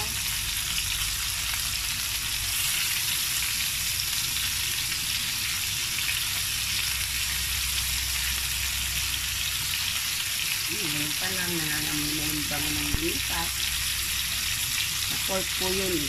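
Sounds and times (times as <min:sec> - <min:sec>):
meat and onion sizzling in oil: 0:00.0 - 0:16.0.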